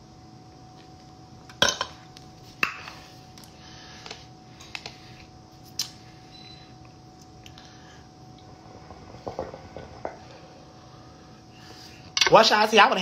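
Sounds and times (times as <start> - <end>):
hookah hose knocking: 9.2 - 10.3.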